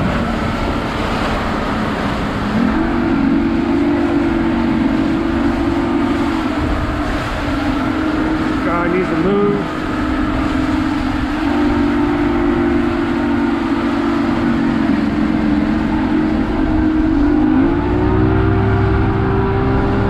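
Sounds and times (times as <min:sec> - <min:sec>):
outboard motor whining: 0:00.0 - 0:20.0
water rushing along hull: 0:00.0 - 0:20.0.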